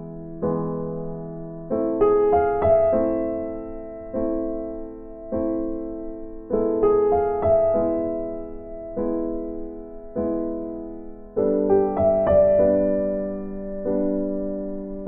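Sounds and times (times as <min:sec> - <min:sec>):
soft piano music: 0:00.0 - 0:15.0.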